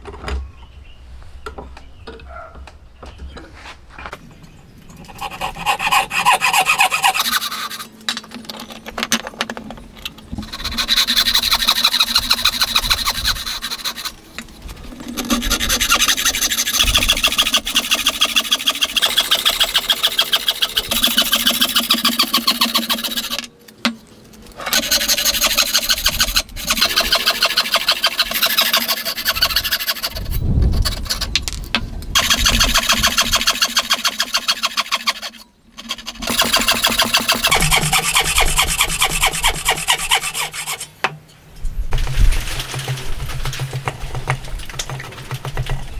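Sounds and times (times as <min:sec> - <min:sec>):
hand saw cutting wood: 0:05.0 - 0:08.0, 0:10.4 - 0:14.2, 0:15.0 - 0:23.5, 0:24.6 - 0:31.4, 0:32.2 - 0:41.0.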